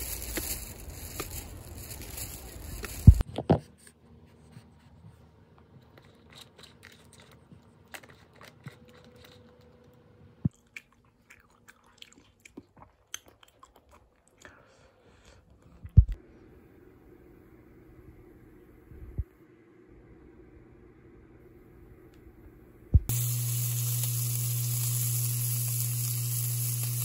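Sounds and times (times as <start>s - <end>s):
quiet chewing: 5.5s - 16.0s.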